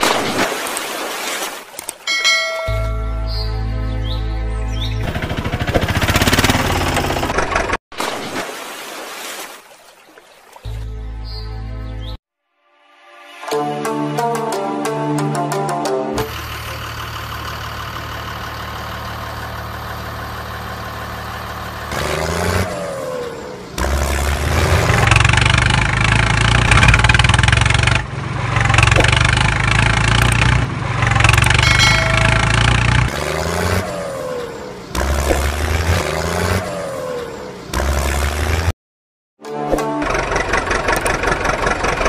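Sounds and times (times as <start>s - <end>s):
tractor engine revving: 4.8s - 7.8s, 16.2s - 38.7s, 39.5s - 42.0s.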